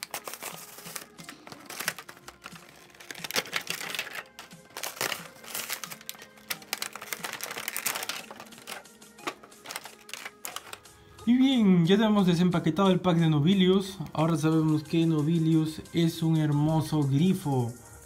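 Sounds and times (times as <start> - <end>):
plastic packaging crinkling: 0.0 - 10.9
faint background music: 0.0 - 18.0.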